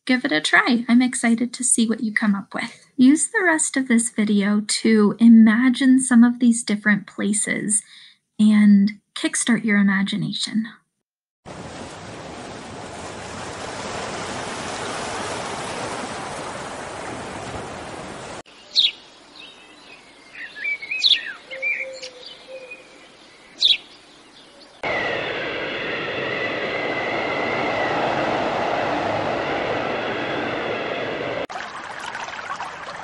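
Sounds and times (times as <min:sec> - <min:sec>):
surf washing on a beach: 0:11.5 - 0:18.4
birds chirping: 0:18.5 - 0:28.2
high whistling tone: 0:24.8 - 0:31.5
steady rushing noise: 0:24.8 - 0:31.5.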